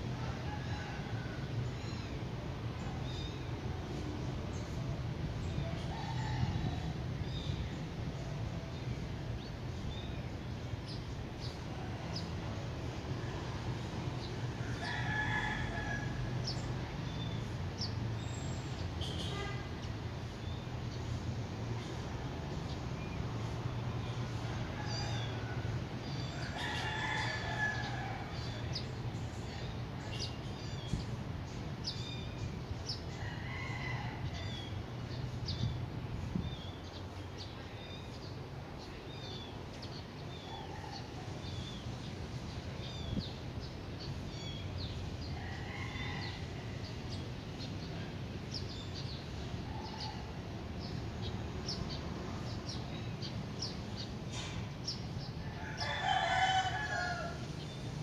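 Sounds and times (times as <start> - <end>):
rooster crowing: 0.2 - 1.5, 14.6 - 16.6, 24.6 - 28.6, 45.4 - 46.9, 55.5 - 57.6.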